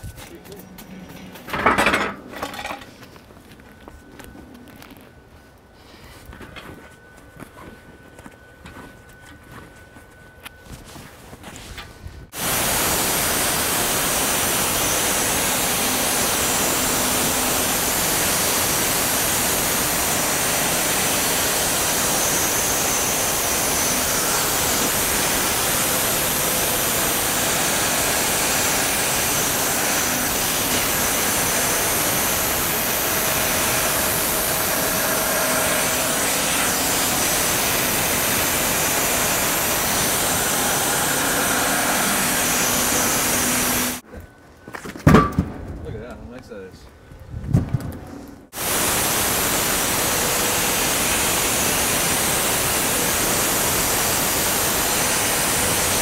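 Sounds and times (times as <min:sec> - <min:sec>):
band sawmill sawing log: 0:12.4 - 0:44.0, 0:48.6 - 0:56.0.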